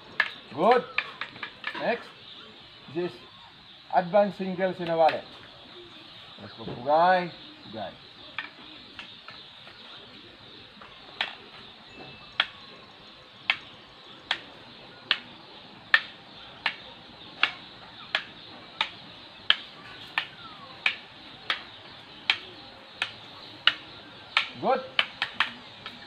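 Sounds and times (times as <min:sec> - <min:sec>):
sticks clacking together: 0:15.9 - 0:26.0.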